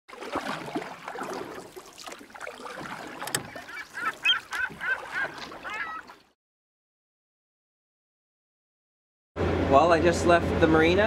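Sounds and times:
birds calling: 2.6s - 6.2s.

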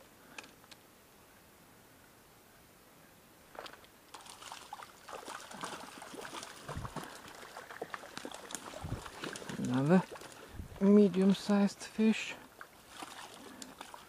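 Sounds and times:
fish splashing in water: 3.6s - 10.5s, 12.6s - 14.0s.

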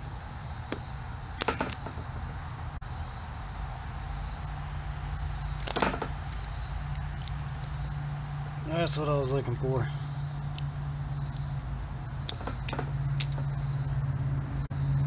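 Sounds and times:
high-pitched insect chorus: 0.0s - 15.0s
sharp handling clicks: 12.2s - 13.5s.

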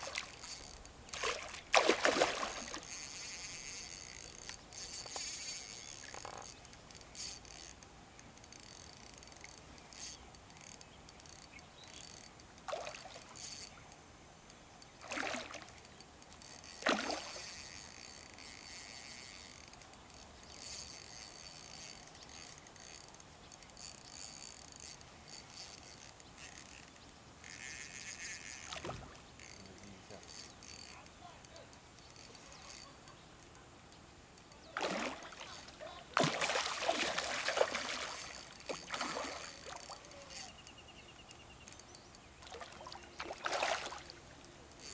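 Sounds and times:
insects buzzing: 0.0s - 44.9s
fish splashing at surface: 1.2s - 2.8s, 34.8s - 39.5s.

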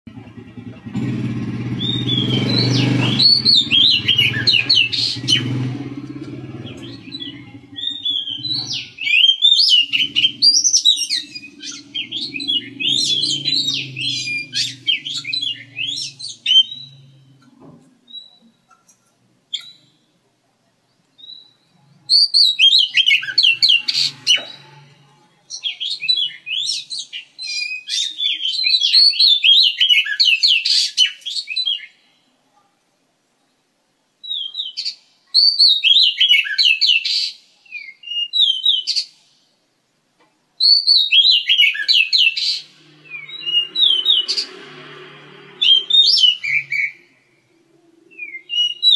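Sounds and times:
bird singing whistled notes: 1.7s - 5.7s, 6.6s - 17.4s, 21.2s - 24.8s, 25.5s - 31.9s, 34.2s - 39.1s, 40.6s - 44.7s, 45.5s - 48.9s.

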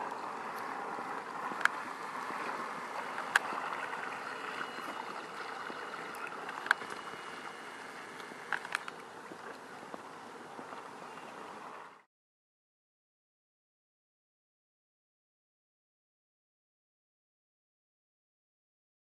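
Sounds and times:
model boat motor and wash hiss: 0.0s - 12.0s
faint high whine: 0.0s - 12.1s
sharp clicks: 8.1s - 9.1s.

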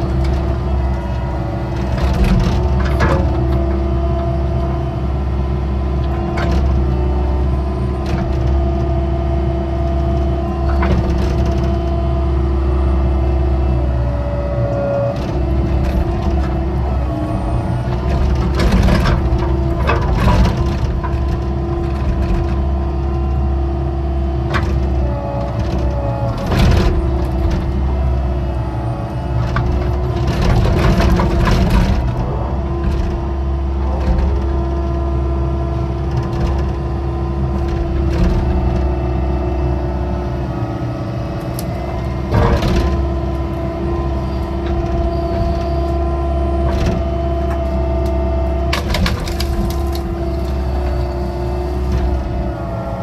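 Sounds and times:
excavator engine running: 0.0s - 53.0s
bucket cracking through soil: 48.7s - 50.8s.

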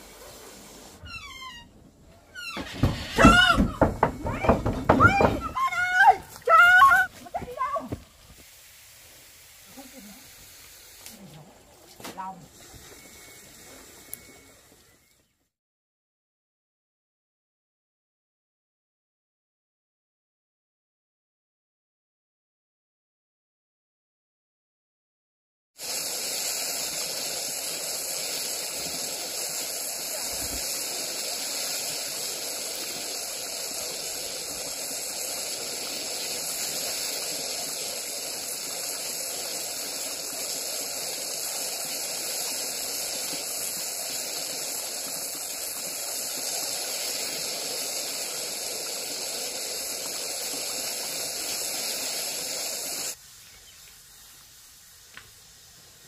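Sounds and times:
faint click: 14.1s - 14.3s
loud high-pitched hissing drone: 25.8s - 53.2s.

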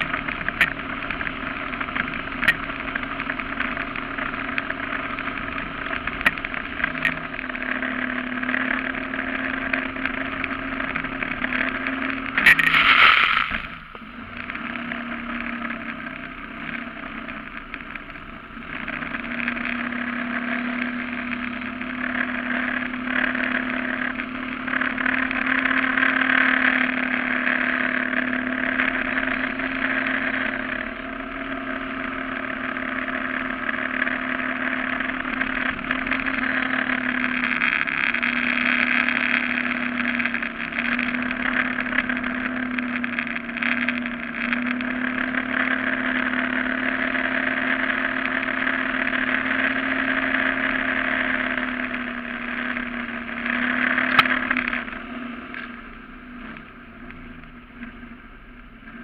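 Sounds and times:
boat engine drone: 0.0s - 59.0s
water noise: 5.0s - 20.0s
brief loud burst of noise: 12.4s - 14.0s.

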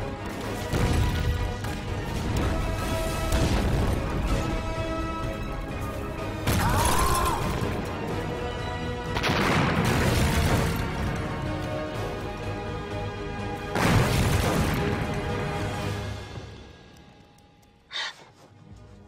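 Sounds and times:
film score music: 0.0s - 19.0s
shell explosions: 0.6s - 5.4s, 9.0s - 11.7s, 13.7s - 15.5s.

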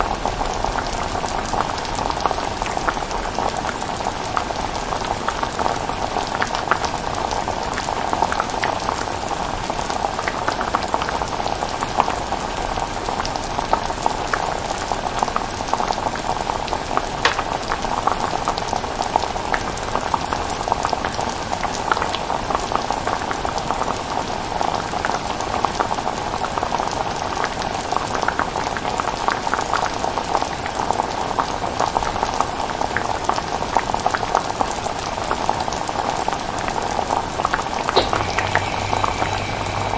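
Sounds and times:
chilli bubbling and popping: 17.2s - 18.2s.

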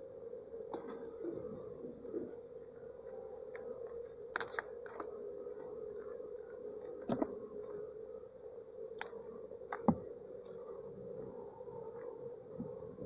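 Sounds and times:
bee swarm buzzing: 0.1s - 13.0s.

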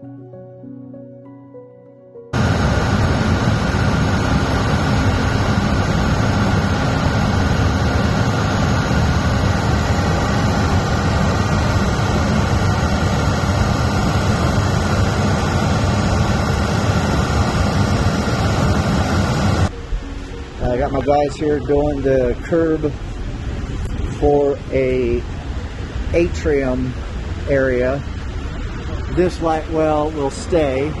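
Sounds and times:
diesel engine droning: 2.4s - 31.0s.

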